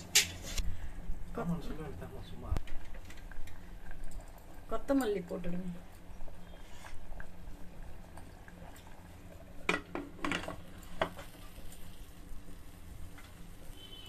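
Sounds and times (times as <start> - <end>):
pot boiling: 0.0 - 14.0.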